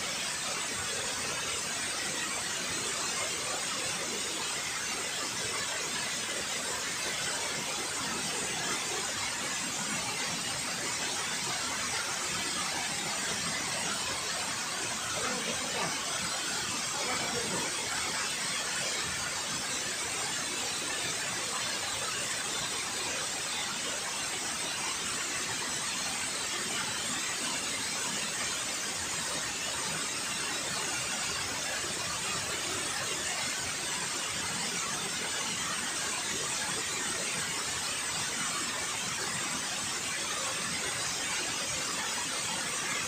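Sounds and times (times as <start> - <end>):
water rushing over dam spillway: 0.1 - 43.0.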